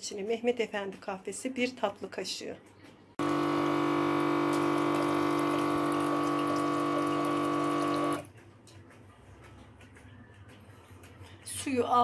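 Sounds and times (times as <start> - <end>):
water pump humming: 3.2 - 8.3.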